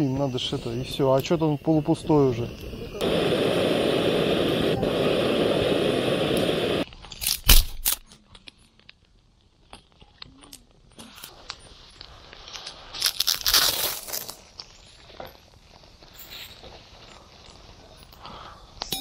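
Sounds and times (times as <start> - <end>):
gas torch hissing: 0.0 - 6.9
campfire crackling and popping: 0.4 - 7.9
sharp snaps and knocks: 6.8 - 15.6
loud crunching: 12.9 - 14.6.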